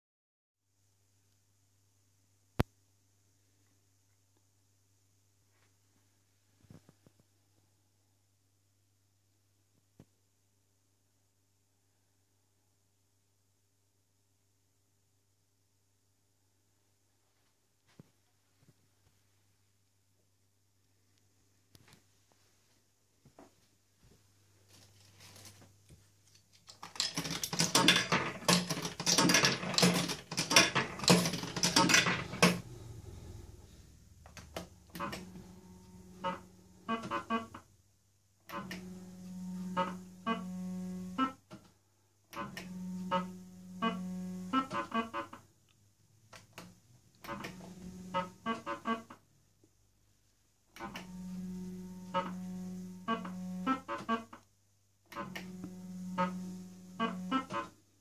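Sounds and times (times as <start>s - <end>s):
coins clattering in a fruit machine: 26.7s - 32.6s
steady buzzing tone: 26.9s - 37.6s, 38.5s - 41.4s, 42.4s - 45.2s, 47.3s - 49.0s, 50.8s - 54.2s, 55.1s - 57.8s.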